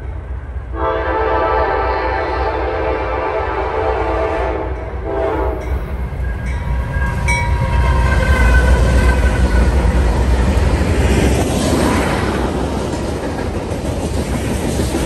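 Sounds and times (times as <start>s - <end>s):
locomotive engines rumbling: 0.0s - 15.0s
locomotive air horn: 0.7s - 5.7s.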